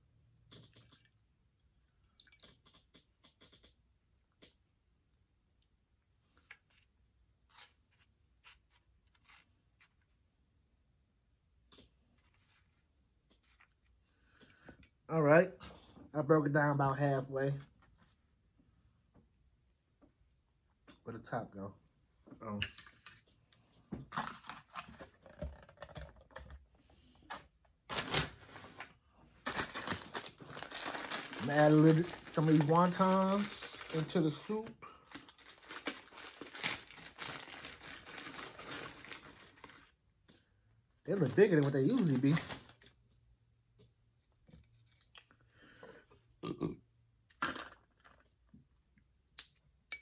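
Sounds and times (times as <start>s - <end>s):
plastic spoon scraping foam cup: 7.5s - 10.0s.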